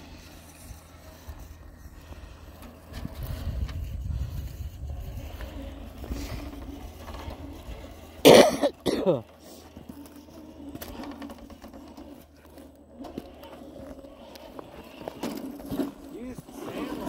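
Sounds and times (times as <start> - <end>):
low wind rumble: 0.0 - 8.3
person coughing: 8.2 - 9.2.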